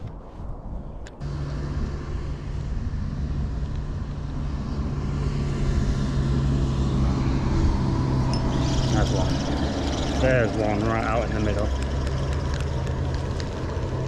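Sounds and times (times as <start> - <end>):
low engine drone: 0.0 - 14.0.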